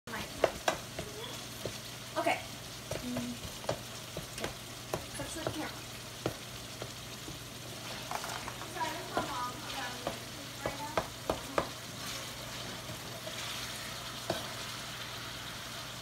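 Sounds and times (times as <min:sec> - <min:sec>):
meat sizzling in a skillet: 0:00.1 - 0:16.0
spatula scraping a pan: 0:07.7 - 0:15.7.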